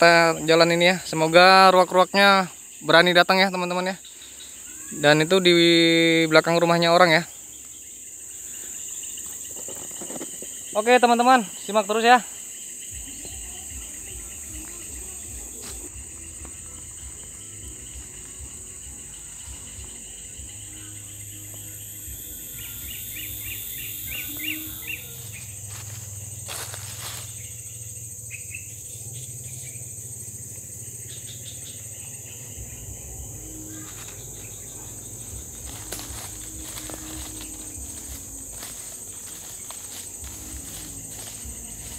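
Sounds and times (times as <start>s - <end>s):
insects droning: 0.0s - 41.9s
bird chirps: 12.8s - 41.9s.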